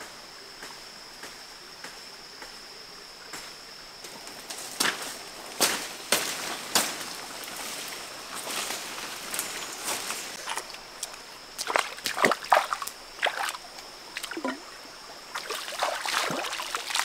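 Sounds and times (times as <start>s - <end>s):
shallow creek hissing: 0.0s - 17.0s
footsteps on dry leaves and twigs: 4.0s - 13.6s.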